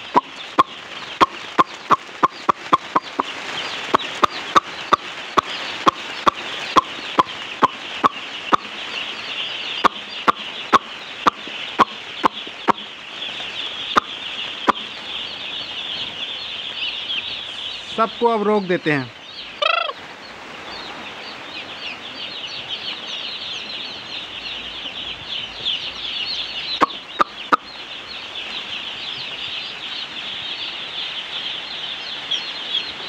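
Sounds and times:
sharp calling clicks: 0.0 - 8.8, 9.8 - 12.9
chicks peeping: 0.0 - 33.0.

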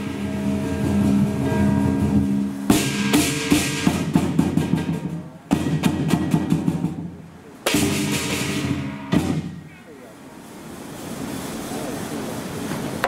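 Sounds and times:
ringing gong: 0.0 - 4.2, 7.8 - 9.6
clashing cymbals: 0.0 - 7.0, 7.7 - 9.8
large drum strokes: 0.0 - 13.0.

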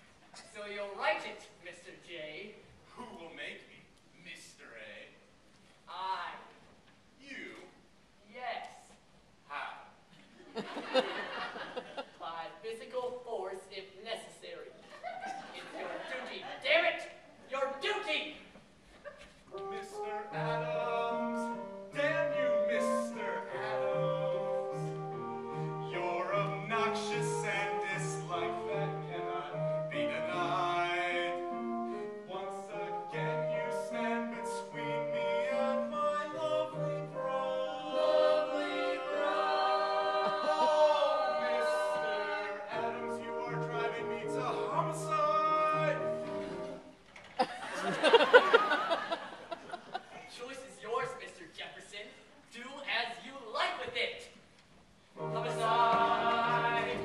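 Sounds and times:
instrumental accompaniment: 19.5 - 46.9, 55.2 - 57.0
men singing a show tune: 19.8 - 25.0, 25.8 - 46.7, 55.2 - 57.0.

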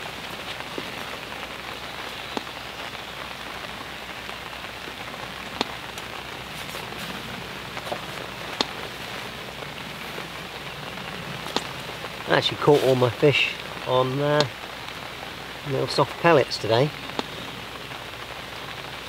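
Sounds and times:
rain falling on a lake: 0.0 - 19.0
raindrops ticking close by: 0.0 - 19.0.

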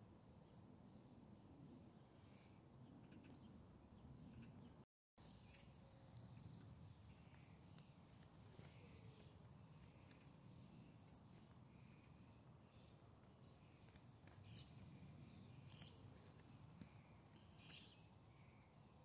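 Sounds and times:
bird chirping: 4.2 - 16.1, 16.8 - 19.0.

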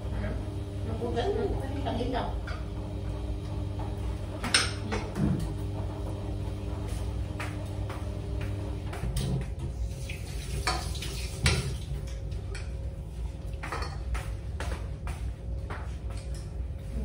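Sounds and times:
dishes and spoons clinking: 13.6 - 14.2.

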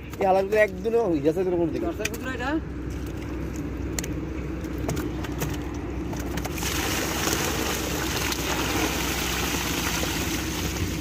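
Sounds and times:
water pouring and splashing: 6.4 - 11.0.

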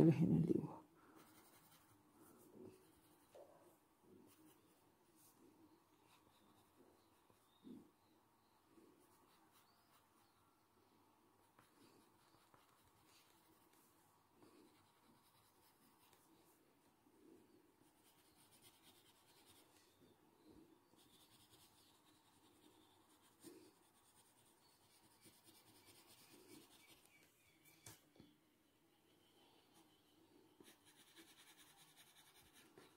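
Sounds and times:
pencil scratching on paper: 1.1 - 3.4, 5.9 - 7.6, 11.4 - 16.6, 17.8 - 19.8, 20.9 - 27.2, 30.6 - 32.9.

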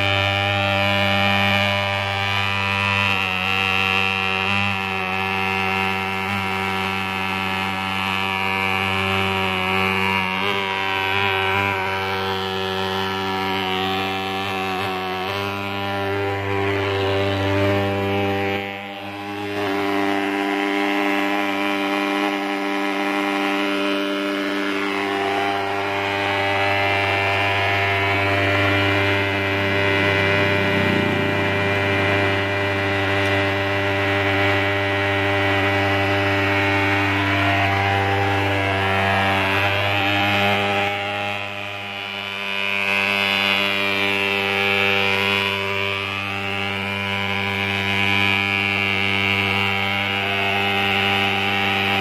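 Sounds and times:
pulse-jet engine buzzing drone: 0.0 - 52.0.

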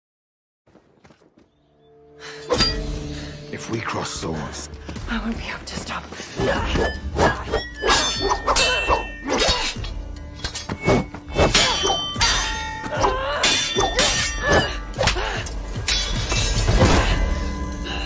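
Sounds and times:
film score music: 0.8 - 18.0
swords clashing: 6.8 - 17.2.

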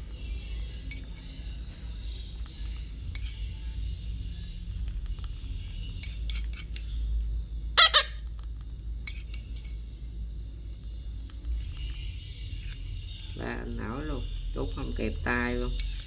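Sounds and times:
teaspoon clinking on ceramic bowl: 3.1 - 3.4, 6.0 - 6.9, 9.0 - 9.8
parakeet chick squawking: 7.8 - 8.2.

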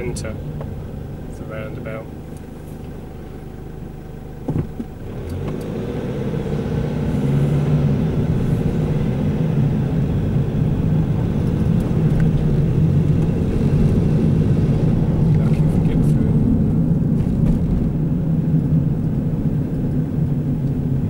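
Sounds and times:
car engine and road noise: 0.0 - 21.0
brief knock: 4.5 - 4.9.

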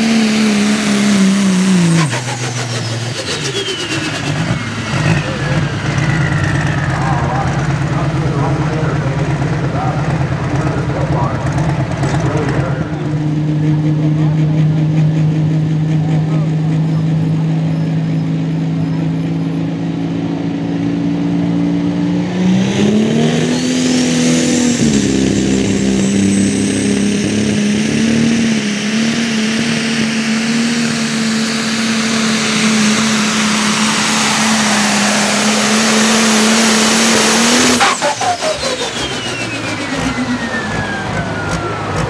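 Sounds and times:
diesel engine revving: 0.0 - 42.0
high turbo whine: 0.0 - 42.0.

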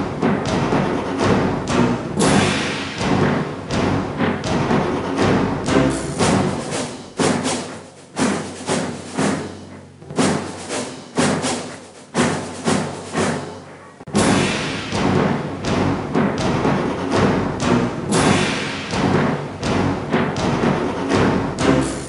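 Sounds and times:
slow orchestral music: 0.0 - 7.4, 14.2 - 22.0
heavy drum hits: 0.0 - 22.0.

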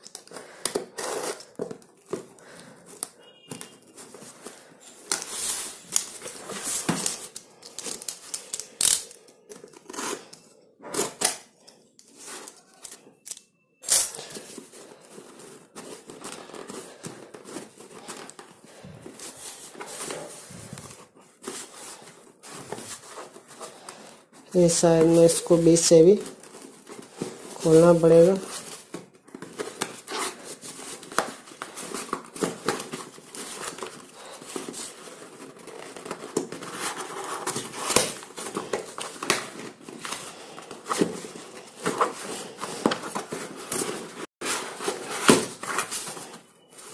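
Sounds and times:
cardboard and tape tearing: 0.0 - 1.6, 29.4 - 46.3.

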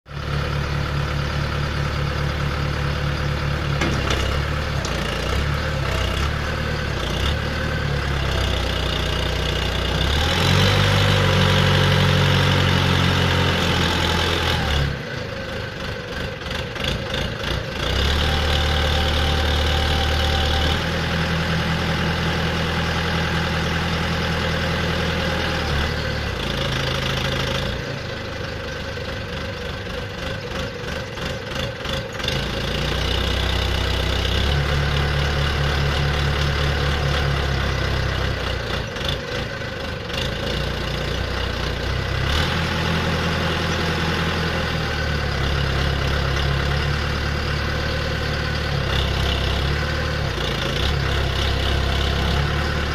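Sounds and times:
diesel engine running: 0.1 - 52.9.

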